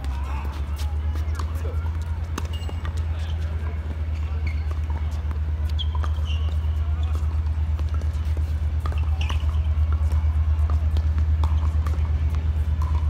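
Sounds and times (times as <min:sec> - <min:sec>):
footsteps on hard court: 0:00.0 - 0:13.0
tennis ball being handled: 0:00.0 - 0:13.0.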